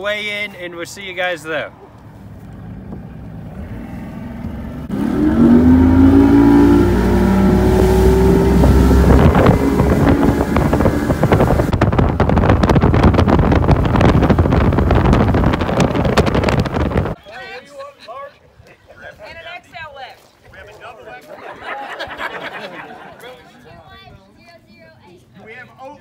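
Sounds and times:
outboard motor throttling up: 2.9s - 17.2s
wind buffeting microphone: 2.9s - 17.2s.

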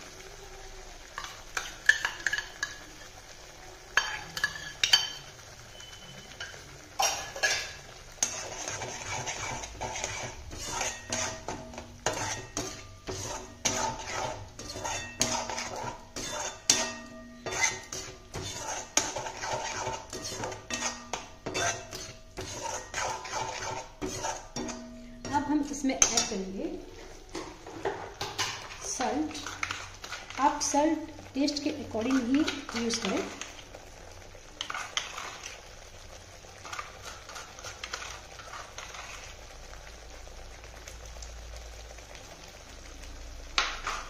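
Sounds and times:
metal spatula scraping pan: 4.0s - 30.8s, 31.5s - 33.6s, 34.6s - 35.6s, 36.6s - 39.3s.

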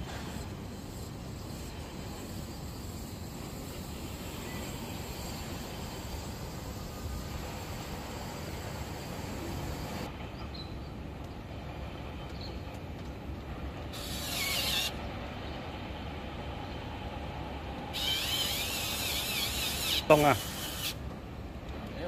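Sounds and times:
gas hissing with thin whistle: 0.0s - 10.1s.

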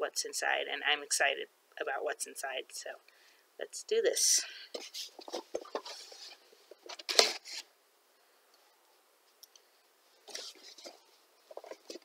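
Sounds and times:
cardboard rustling: 4.7s - 7.7s, 10.2s - 12.0s.

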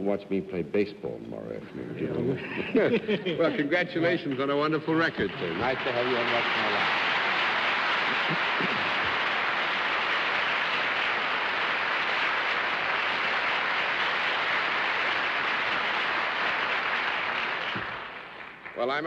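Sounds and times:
audience applauding: 4.0s - 19.0s.

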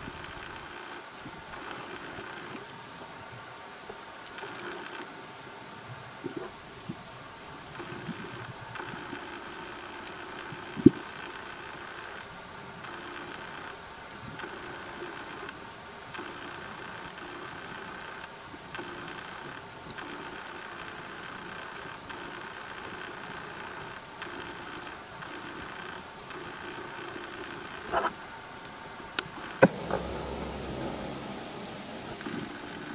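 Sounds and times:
intermittent hum: 0.0s - 32.9s
underwater hiss with ticks: 0.1s - 5.2s, 5.8s - 32.9s.

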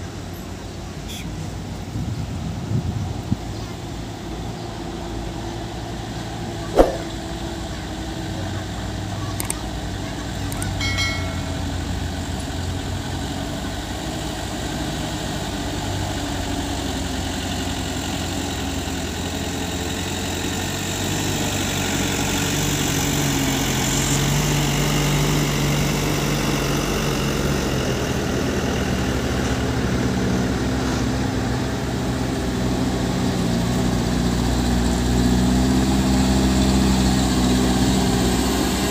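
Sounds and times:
diesel truck engines: 0.0s - 38.9s
sharp knock: 6.8s - 7.1s.

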